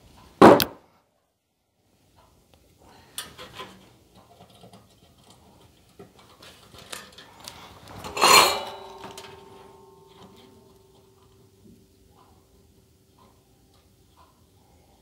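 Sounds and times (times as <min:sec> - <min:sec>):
wire clicking and rustling: 0:03.1 - 0:11.4
metallic tools clattering: 0:06.4 - 0:10.6.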